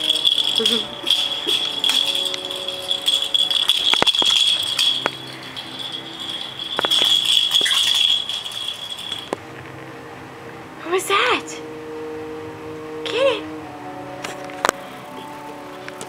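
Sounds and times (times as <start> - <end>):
plastic toy ball rattling: 0.0 - 9.4.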